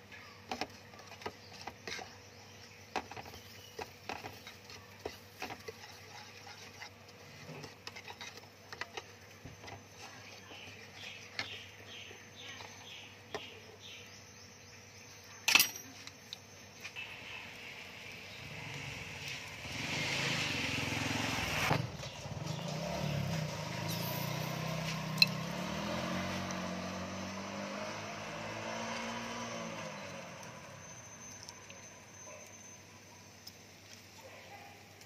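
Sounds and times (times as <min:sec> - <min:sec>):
vehicle engine running: 0:17.0 - 0:32.0.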